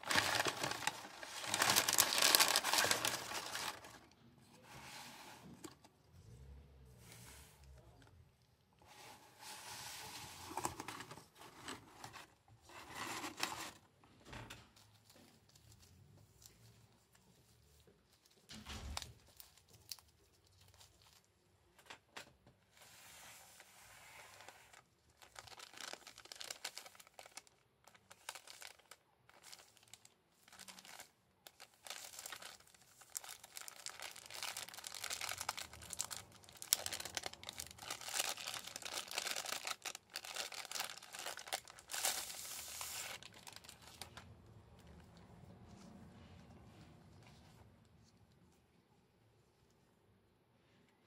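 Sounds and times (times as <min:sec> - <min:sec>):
plastic wrapping crinkling: 0:00.0 - 0:04.1, 0:24.3 - 0:45.1.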